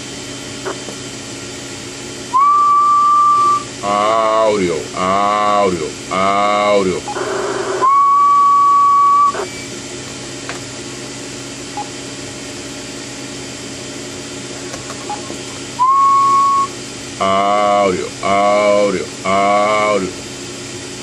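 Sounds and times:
low hum and hiss: 0.0s - 21.0s
person whistling high note: 2.3s - 3.7s, 15.8s - 16.8s.

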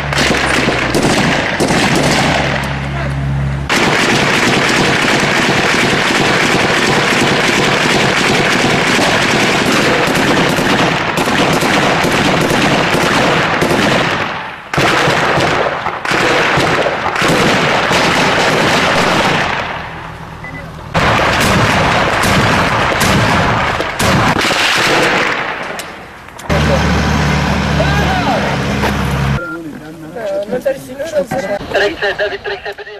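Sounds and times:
automatic rifle fire: 0.0s - 2.8s, 3.7s - 19.8s, 21.0s - 26.1s.

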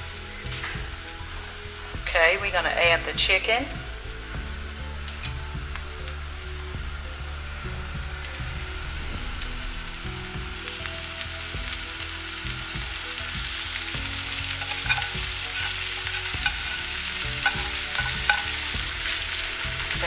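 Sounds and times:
food sizzling in a pan: 0.0s - 20.0s
utensil scraping and tapping pan: 14.6s - 18.7s.

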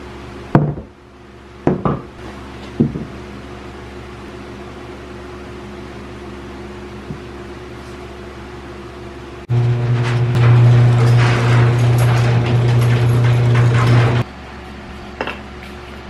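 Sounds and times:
steady mechanical hum: 0.0s - 16.0s
wooden tools knocking on plywood: 1.7s - 2.1s, 2.8s - 3.1s.

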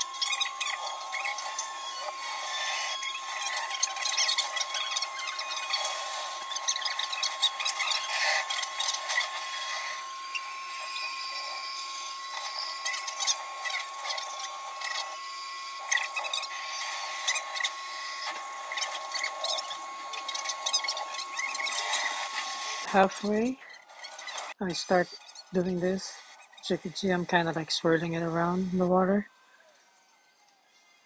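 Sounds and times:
high-pitched motor whine: 0.0s - 31.0s
scratchy crackling: 15.8s - 29.3s.

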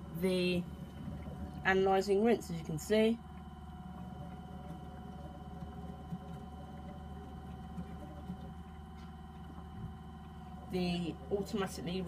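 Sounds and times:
small motor hum and whine: 0.0s - 12.0s
water spraying inside drum: 1.6s - 12.0s.

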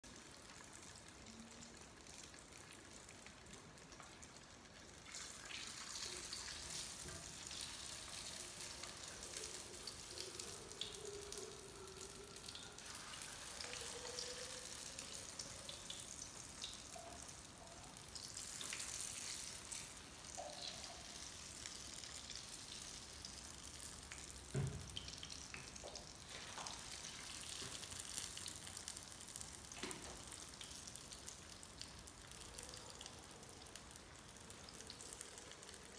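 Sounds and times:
food sizzling in hot oil: 0.1s - 35.9s
knock: 24.6s - 24.9s.

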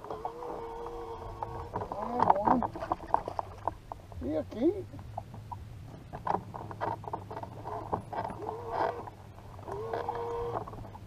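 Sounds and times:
small clicks and knocks: 5.2s - 11.0s.

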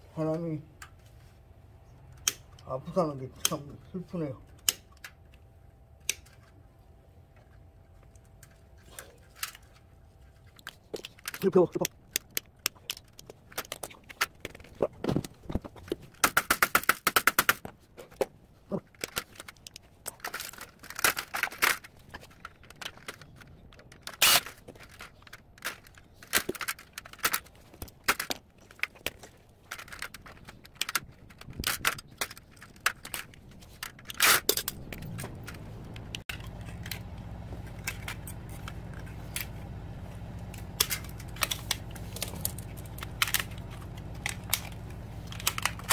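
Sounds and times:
low steady hum: 17.6s - 45.9s.

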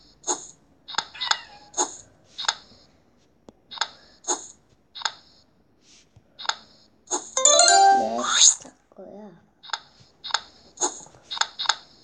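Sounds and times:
bright tile flip sounds: 7.4s - 8.4s.

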